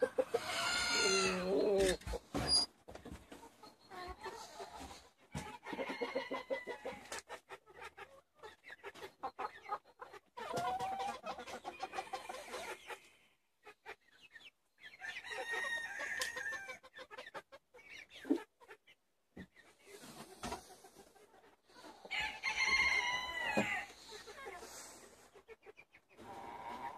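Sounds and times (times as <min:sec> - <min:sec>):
chickens clucking: 0:00.0 - 0:26.9
rooster crowing: 0:00.3 - 0:01.5, 0:22.1 - 0:23.9.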